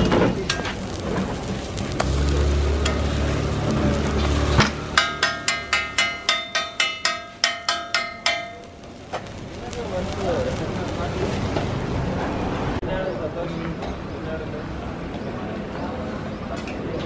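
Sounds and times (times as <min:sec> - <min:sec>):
metal spatula clanking on griddle: 0:00.0 - 0:00.9, 0:04.6 - 0:09.3.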